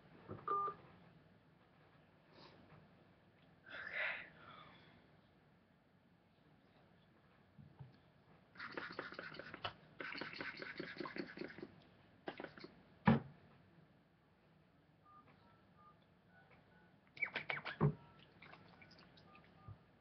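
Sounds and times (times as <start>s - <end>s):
thump: 13.1s - 13.3s.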